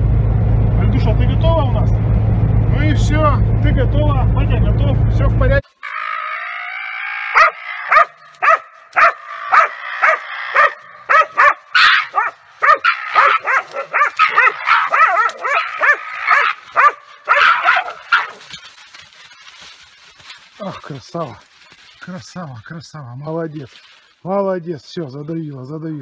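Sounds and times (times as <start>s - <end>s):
dog barking: 7.3s - 18.5s
dog whining: 7.3s - 18.5s.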